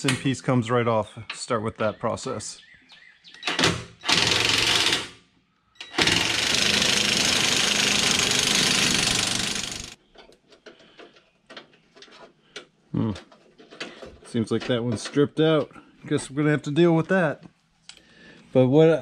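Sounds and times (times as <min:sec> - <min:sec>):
power tool running on bolt: 0:03.5 - 0:05.2, 0:05.8 - 0:10.0.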